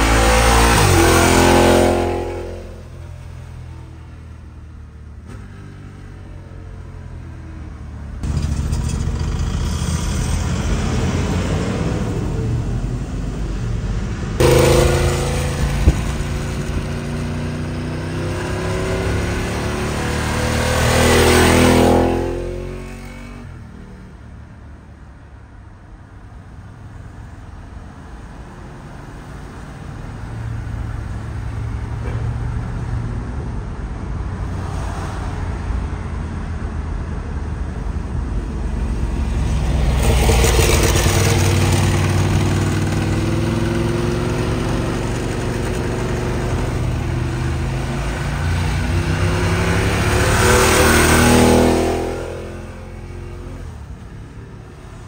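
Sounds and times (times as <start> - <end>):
motorcycle engine revving: 0.0 - 3.9, 8.2 - 12.5, 14.4 - 23.6, 38.9 - 54.0
traffic noise: 0.0 - 55.0.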